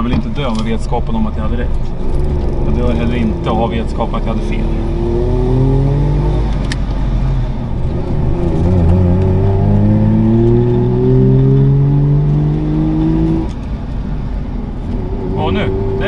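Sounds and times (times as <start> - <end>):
two-stroke car engine accelerating: 1.7 - 13.6.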